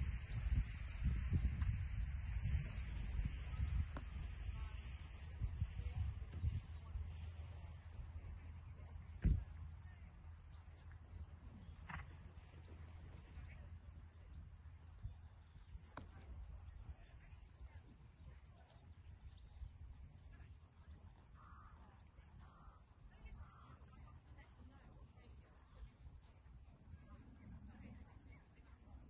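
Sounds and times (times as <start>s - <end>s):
faint bird chirps: 2.4s - 29.0s.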